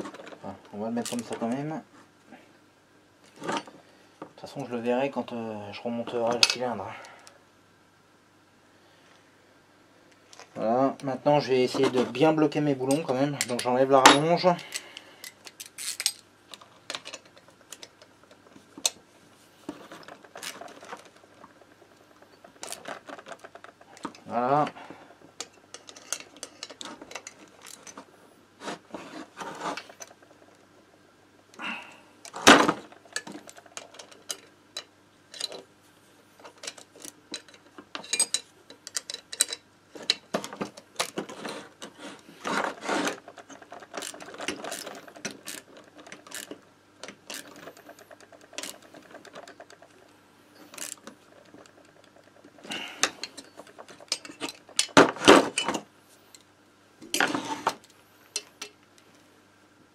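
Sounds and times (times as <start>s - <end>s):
metal tools clinking on workbench: 36.6s - 40.3s.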